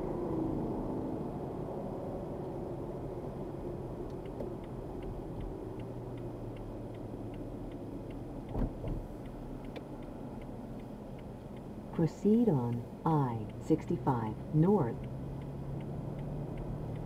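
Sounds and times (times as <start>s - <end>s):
car road noise rumble: 0.0s - 17.0s
turn signal clicking: 4.0s - 17.0s.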